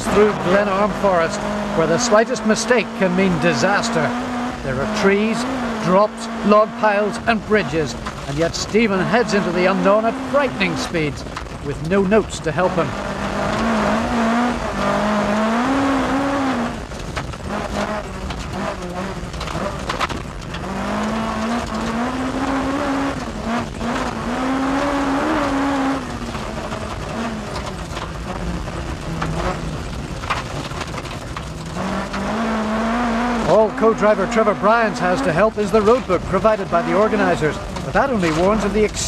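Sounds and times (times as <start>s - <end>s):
rally car engine revving: 0.0s - 39.0s
stones clattering under car: 16.7s - 22.5s, 24.8s - 32.5s, 35.3s - 39.0s.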